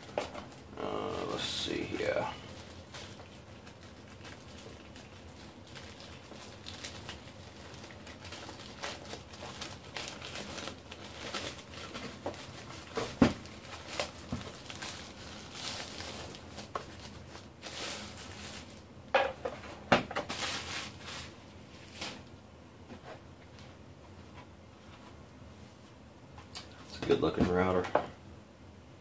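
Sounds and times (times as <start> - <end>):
packing bag rustling and crinkling: 0.0 - 18.9, 20.1 - 22.3.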